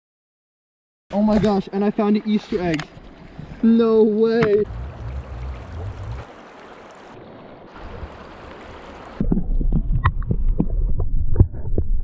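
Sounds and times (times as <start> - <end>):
stream water hissing: 4.4 - 9.2
muffled underwater rumble: 4.6 - 6.2
underwater clicks and pops: 9.2 - 12.0.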